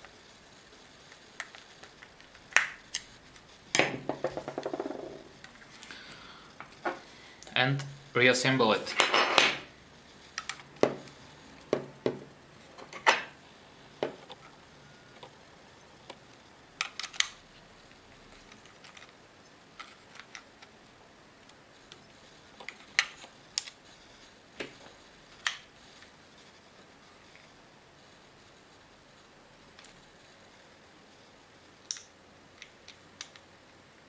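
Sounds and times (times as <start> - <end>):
plastic parts clicking: 16.8 - 17.4.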